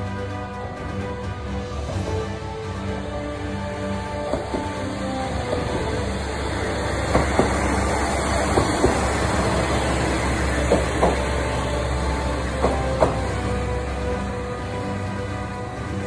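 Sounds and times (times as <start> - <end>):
diesel railcar engine rumbling: 0.0 - 16.0
wheel clacks over rail joints: 4.1 - 13.8.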